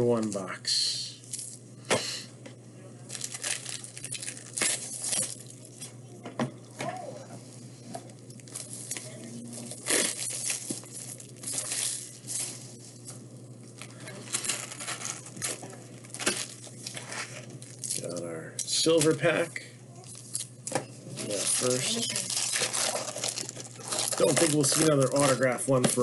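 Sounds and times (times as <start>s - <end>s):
steady low hum: 0.0s - 26.0s
packaging torn and crinkled: 3.1s - 5.6s, 8.4s - 12.6s, 13.7s - 18.2s, 21.2s - 25.4s.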